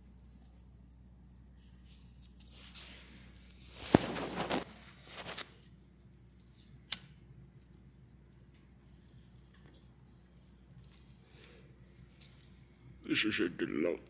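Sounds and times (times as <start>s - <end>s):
nylon jacket rustling: 2.5s - 5.5s.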